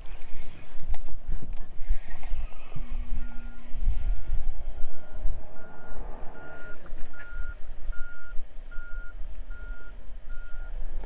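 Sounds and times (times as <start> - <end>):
low rumble: 1.2 - 9.6
electronic beeper beeping: 3.1 - 10.7.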